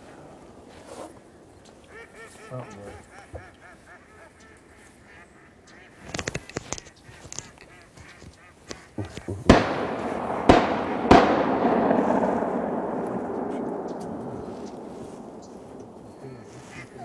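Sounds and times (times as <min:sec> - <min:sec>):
shotgun shots with echo: 0:09.4 - 0:17.0
duck quacking: 0:16.2 - 0:17.0.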